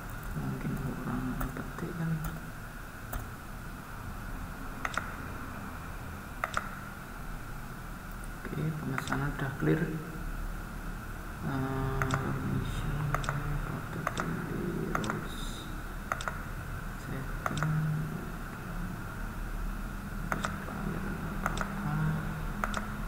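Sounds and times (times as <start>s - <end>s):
computer mouse clicking: 3.1s - 3.3s, 4.8s - 5.2s, 6.4s - 6.8s, 8.9s - 9.4s, 12.0s - 12.3s, 13.1s - 15.2s, 16.1s - 16.4s, 17.4s - 17.8s, 20.3s - 20.6s, 21.4s - 21.8s, 22.6s - 23.0s.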